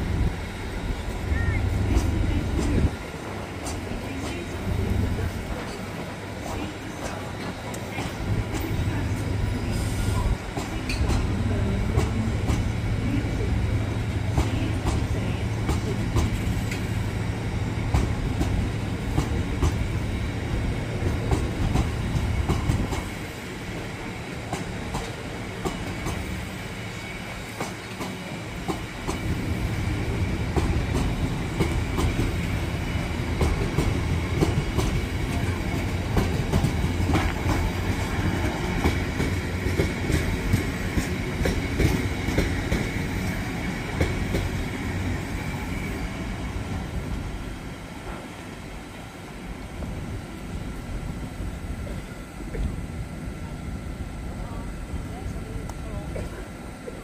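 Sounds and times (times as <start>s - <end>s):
train rumble: 0.0s - 57.0s
train wheels clicking over rail joints: 10.5s - 12.8s, 14.3s - 17.0s, 20.9s - 23.3s, 24.5s - 26.6s, 27.3s - 45.2s.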